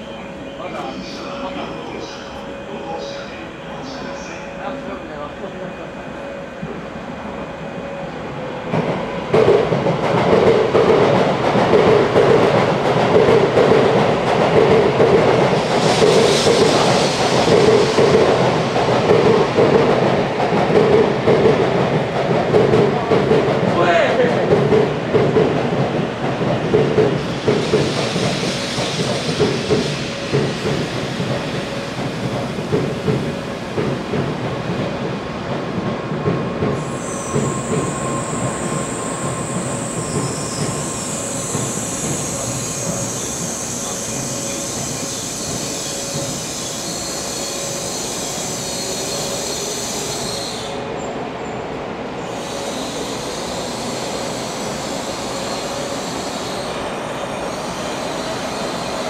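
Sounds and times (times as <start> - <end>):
train wheels rumbling clatter: 8.7 - 50.7
high wheel squeal: 36.8 - 50.8, 52.2 - 59.0.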